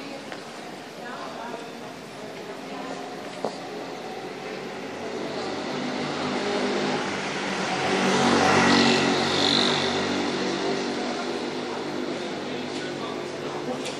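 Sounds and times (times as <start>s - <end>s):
vehicle passing by: 4.0s - 12.6s.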